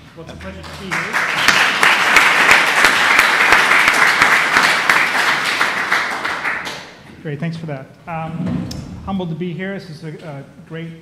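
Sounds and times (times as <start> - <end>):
audience applauding: 0.4 - 6.9.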